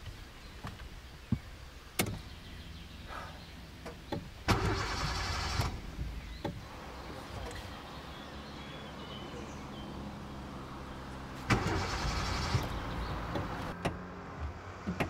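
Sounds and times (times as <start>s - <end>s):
starter motor cranking: 4.5s - 5.9s, 11.5s - 13.6s.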